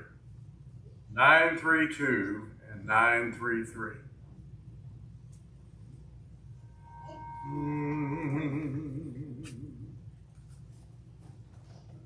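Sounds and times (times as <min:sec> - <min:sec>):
man humming a low note: 0:06.7 - 0:10.2.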